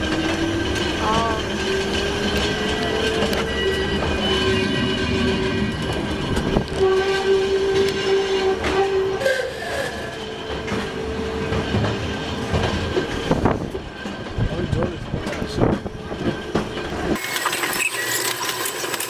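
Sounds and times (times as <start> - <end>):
wheels clicking over rail joints: 0.0 - 4.2
railway car whine and rumble: 0.0 - 19.0.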